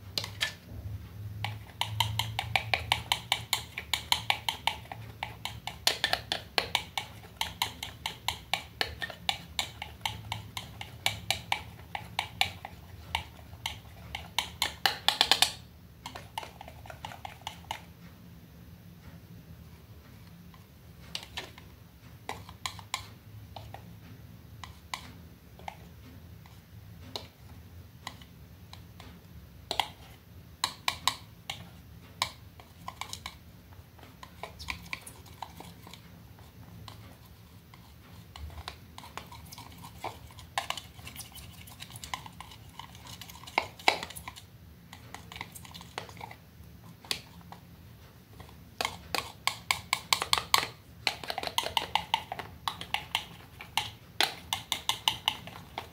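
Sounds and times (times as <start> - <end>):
palette knife tapping and scraping: 0.1 - 0.6, 1.3 - 18.1, 19.1 - 55.9.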